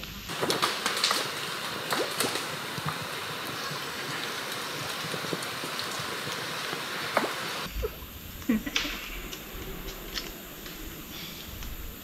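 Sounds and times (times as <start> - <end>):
creek water flowing over sand: 0.3 - 12.0.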